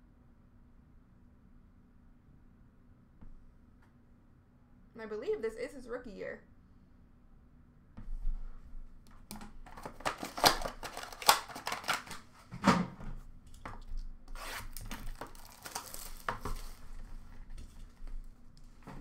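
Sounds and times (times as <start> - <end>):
cardboard packaging rustling and tearing: 9.6 - 12.5, 13.7 - 19.0.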